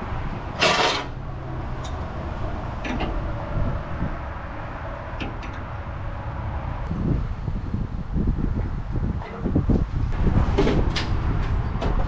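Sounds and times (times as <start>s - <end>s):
harsh metallic scrape: 0.6s - 1.2s.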